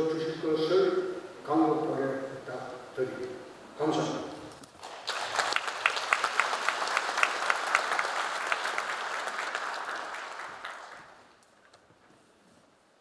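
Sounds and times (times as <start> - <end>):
audience applauding: 4.8 - 11.5.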